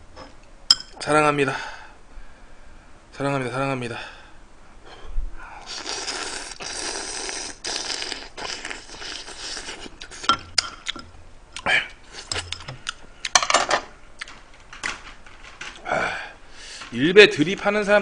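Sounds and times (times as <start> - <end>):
noodle slurping: 5.6 - 10.3
chewing: 5.7 - 13.4.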